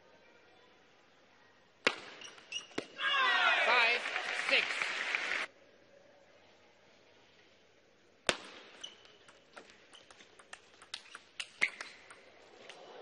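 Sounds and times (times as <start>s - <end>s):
table tennis ball clicks: 8.7s - 12.8s.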